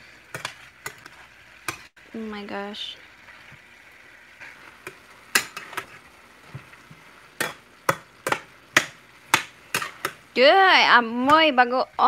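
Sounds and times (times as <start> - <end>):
faint frying sizzle: 0.0 - 12.0
utensil knocking on steel pan: 7.4 - 10.2.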